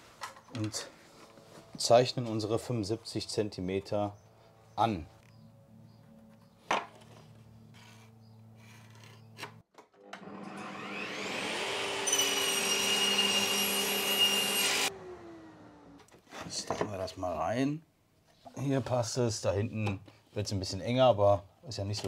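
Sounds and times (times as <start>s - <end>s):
saw cutting wood board: 7.8s - 15.8s
table saw whine: 10.0s - 16.0s.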